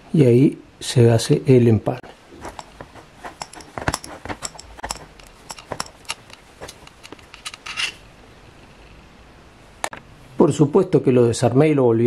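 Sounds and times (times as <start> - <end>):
wires rubbing and ticking: 2.0 - 8.0.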